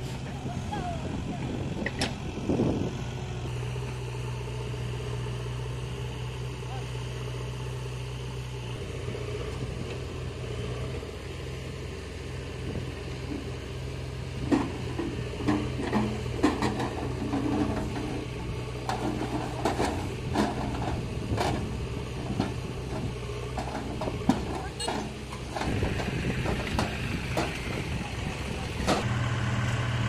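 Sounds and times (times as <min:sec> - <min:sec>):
tractor engine running: 0:00.0 - 0:30.0
trolley clanks and knocks: 0:14.4 - 0:29.1.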